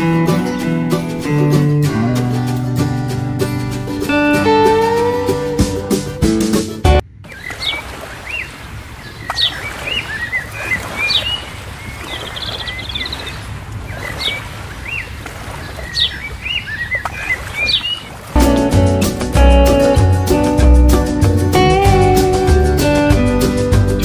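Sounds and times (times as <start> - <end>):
bird trill: 7.3 - 18.1
songbirds chirping and whistling: 7.3 - 18.2.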